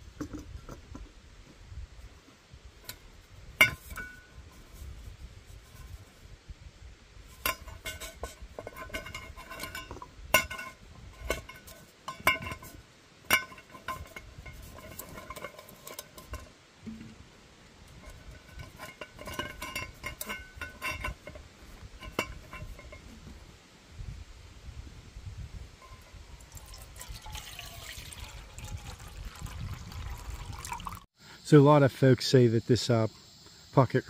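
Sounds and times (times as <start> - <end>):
metal pot clinking: 3.6 - 4.4, 7.4 - 17.2, 17.9 - 23.3, 25.8 - 31.0
wire handles rattling: 17.9 - 23.4.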